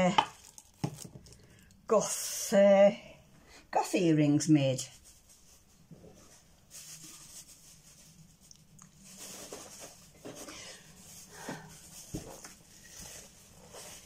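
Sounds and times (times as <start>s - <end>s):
faint rustling: 4.8s - 14.0s.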